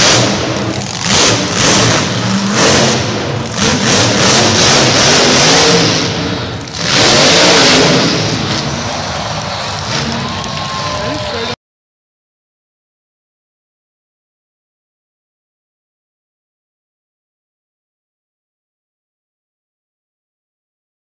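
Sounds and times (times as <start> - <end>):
monster truck engine revving: 0.0 - 11.5.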